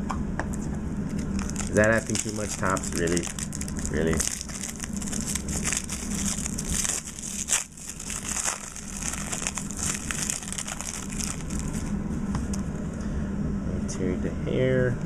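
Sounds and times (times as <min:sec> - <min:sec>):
foil wrapper crinkling: 0:01.1 - 0:12.6.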